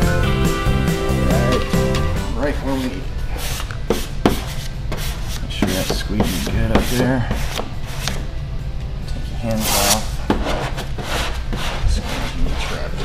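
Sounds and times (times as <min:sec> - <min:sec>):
background music: 0:00.0 - 0:11.2
squeegee rubbing over vinyl film: 0:09.5 - 0:13.0.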